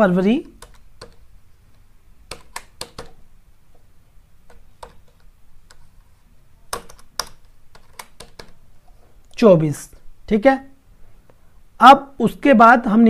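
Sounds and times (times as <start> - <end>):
computer keyboard keystrokes: 0.5 - 1.2, 2.3 - 3.2, 4.4 - 5.8, 6.7 - 8.6.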